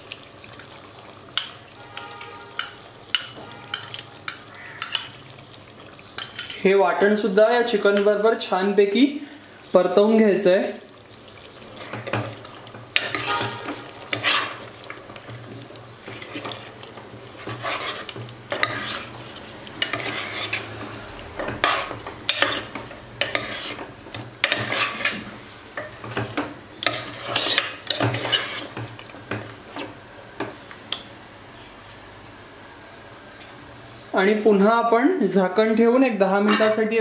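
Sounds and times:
light sizzle: 0.0 - 37.0
metal ladle scraping steel pot: 1.8 - 5.1, 13.0 - 14.7, 17.4 - 19.2, 19.8 - 20.8, 21.4 - 25.2, 26.8 - 28.8, 36.4 - 36.9.

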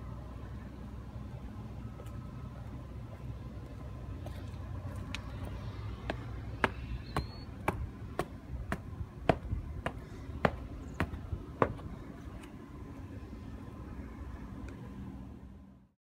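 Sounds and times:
low outdoor rumble: 0.0 - 16.0
footsteps on concrete: 2.0 - 12.6.

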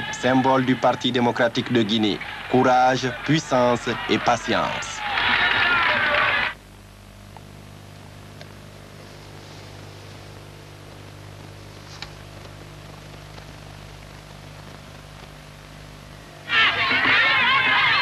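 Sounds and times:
film soundtrack hum and hiss: 0.0 - 18.0.

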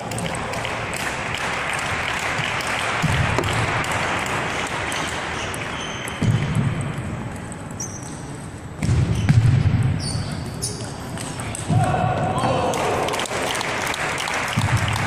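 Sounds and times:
crowd clapping: 0.0 - 5.8, 12.6 - 15.0.

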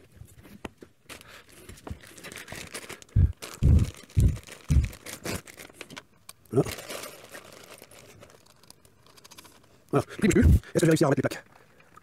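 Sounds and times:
plastic bag crinkling: 1.0 - 9.8
loud low thumps: 3.2 - 5.0.

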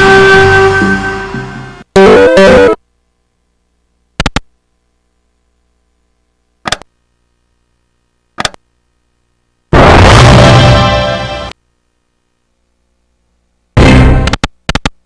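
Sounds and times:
slot machine game music: 2.0 - 2.8.

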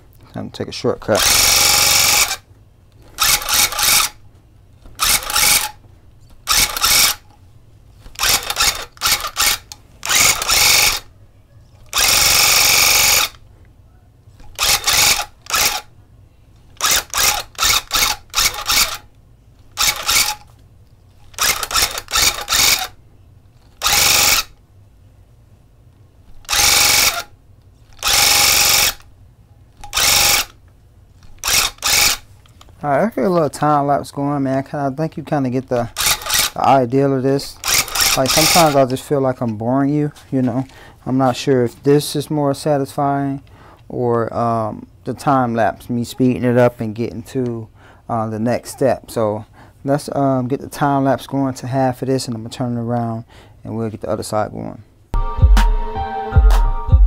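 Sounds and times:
tufting gun motor chattering: 1.1 - 2.4, 3.0 - 4.2, 4.9 - 5.8, 6.4 - 7.2, 8.1 - 11.1, 11.9 - 13.4, 14.4 - 15.9, 16.8 - 19.1, 19.7 - 20.4, 21.2 - 23.0, 23.7 - 24.5, 26.4 - 27.3, 27.9 - 29.0, 29.8 - 30.6, 31.2 - 32.2, 35.8 - 36.8, 37.5 - 39.0.

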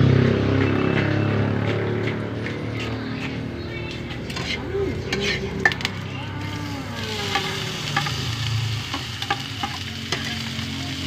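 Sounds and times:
vegetables sizzling in a wok: 5.9 - 11.0.

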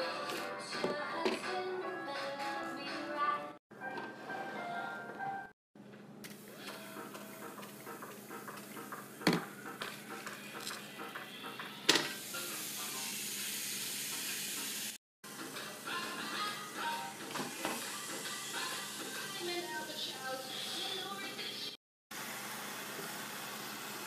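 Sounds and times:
faint background music: 0.0 - 5.5
chicken sizzling on grill: 6.4 - 21.0, 22.2 - 24.0.

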